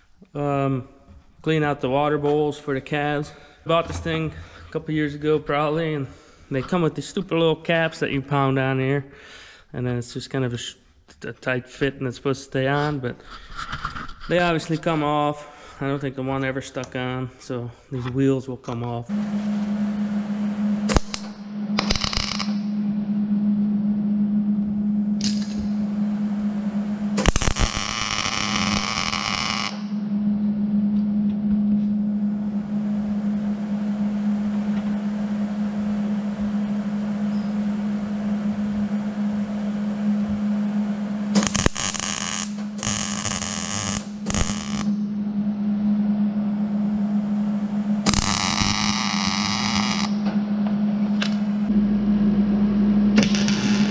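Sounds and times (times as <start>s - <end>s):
steady hum: 0.0s - 17.9s, 18.8s - 53.9s
arc welder crackling: 20.8s - 22.7s, 25.2s - 25.8s, 27.2s - 29.9s, 41.3s - 45.0s, 48.0s - 50.3s, 53.2s - 53.9s.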